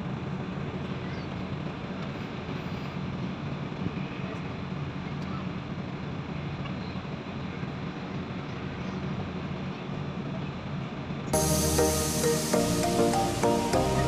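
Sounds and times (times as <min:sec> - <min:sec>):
ship engines droning: 0:00.0 - 0:14.0
rushing hiss: 0:11.4 - 0:14.0.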